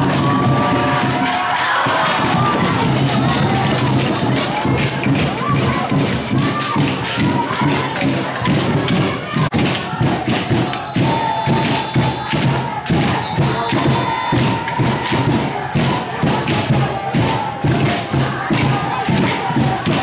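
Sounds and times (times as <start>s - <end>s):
crowd noise: 0.0s - 20.0s
rapid drumbeat: 0.0s - 20.0s.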